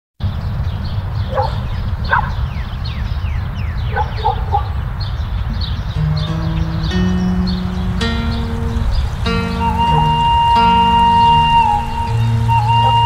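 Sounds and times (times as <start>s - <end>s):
held music notes: 6.0s - 13.0s
high falling chirps: 6.0s - 13.0s.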